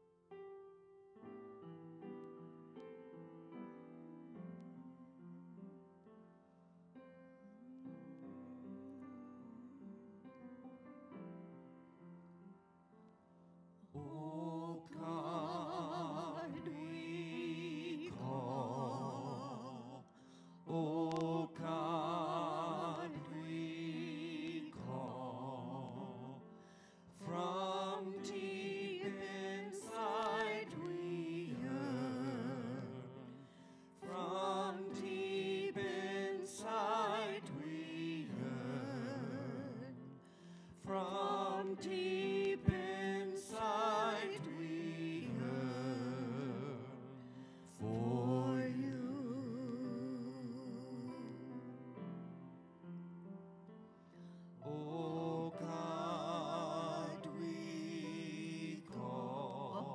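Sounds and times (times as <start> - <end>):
grand piano: 0.0 - 59.9
man and woman singing a hymn: 14.0 - 52.2, 54.3 - 59.9.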